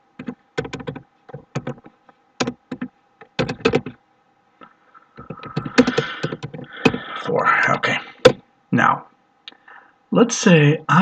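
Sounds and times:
typing on a keyboard: 0:00.2 - 0:04.0, 0:05.2 - 0:07.0.

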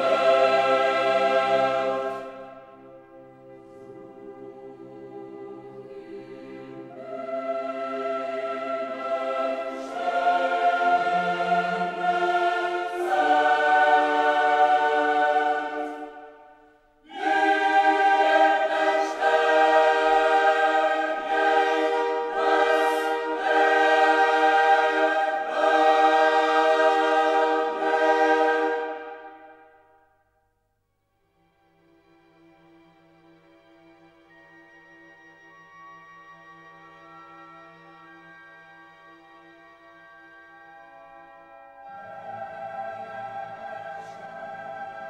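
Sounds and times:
choir singing long chords: 0:00.0 - 0:30.2, 0:40.2 - 0:45.0.

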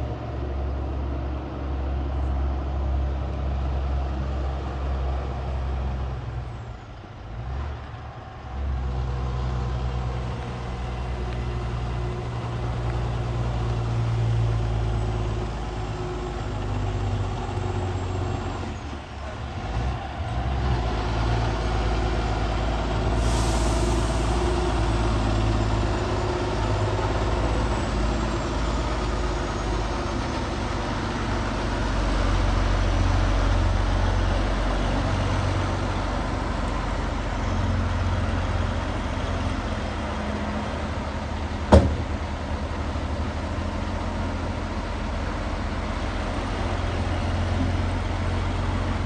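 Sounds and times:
diesel truck engines running: 0:00.0 - 0:49.0
brief hiss: 0:23.2 - 0:24.7.

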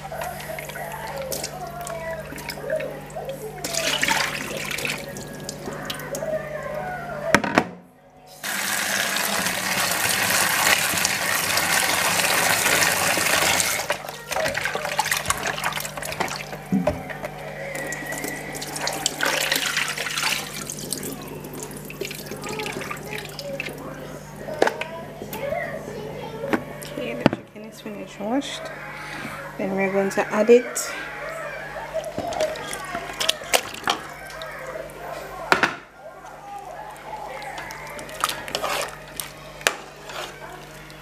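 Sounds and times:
splashing and handling: 0:00.0 - 0:06.3, 0:09.0 - 0:24.9, 0:31.8 - 0:41.0.

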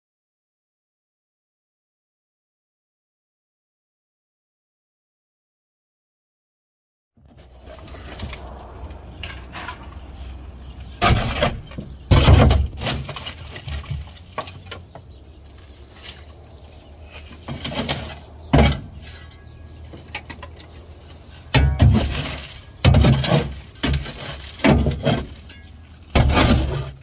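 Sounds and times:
shovel scraping metal floor: 0:07.3 - 0:14.7, 0:17.0 - 0:19.4, 0:21.4 - 0:27.0
scraping clanks: 0:07.3 - 0:27.0.

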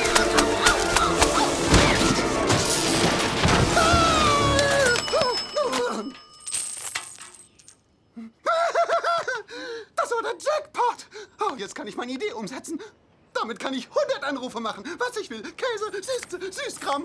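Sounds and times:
music: 0:00.0 - 0:05.0
coins jingling: 0:04.8 - 0:08.0.

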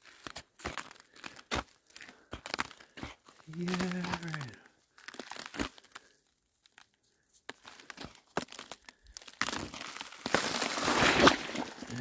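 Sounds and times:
footsteps crunching snow: 0:00.0 - 0:12.0.

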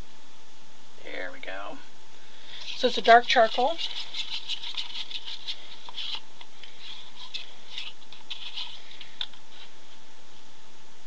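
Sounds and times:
stirring in a paper cup: 0:02.5 - 0:09.7.

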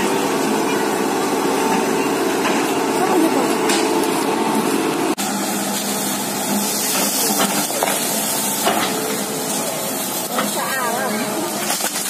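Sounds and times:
loud hissing rush: 0:05.2 - 0:11.7.

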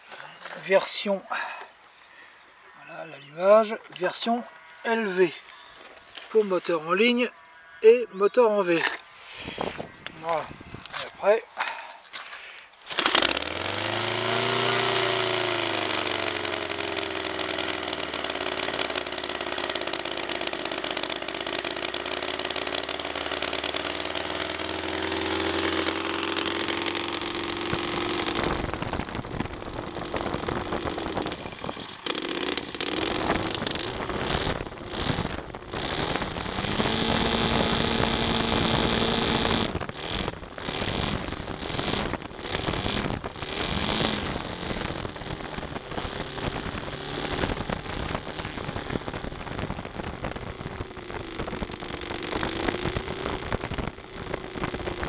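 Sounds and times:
model engine running: 0:12.9 - 0:55.0.

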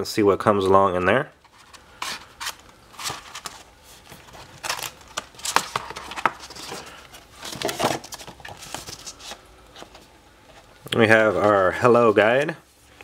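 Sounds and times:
cardboard folder scraping and rustling: 0:01.5 - 0:10.1.

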